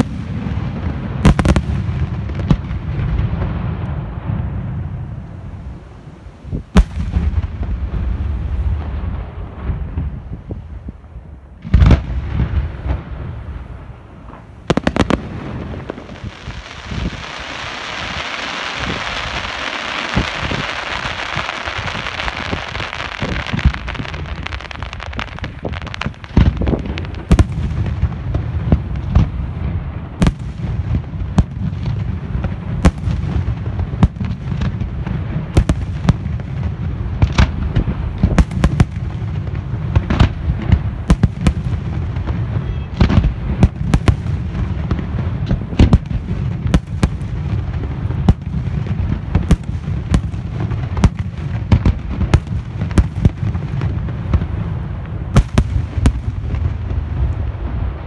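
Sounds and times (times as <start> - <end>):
fireworks bursting: 0.0 - 58.0
low rumble of booms: 0.0 - 58.0.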